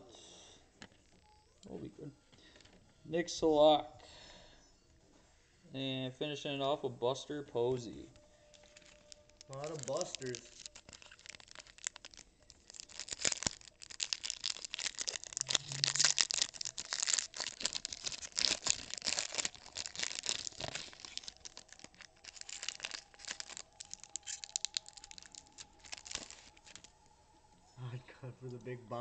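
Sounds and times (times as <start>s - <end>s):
foil wrapper tearing and crinkling: 8.5s - 27.0s.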